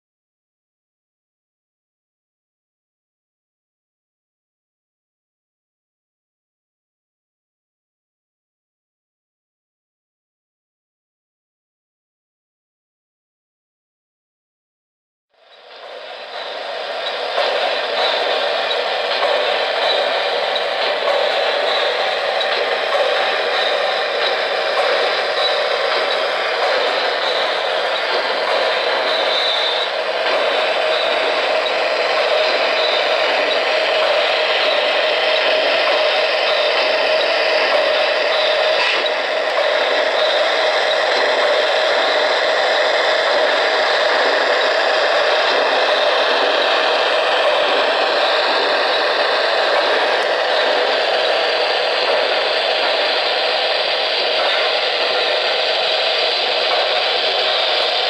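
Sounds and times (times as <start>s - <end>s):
model trains whirring on track: 15.3s - 58.0s.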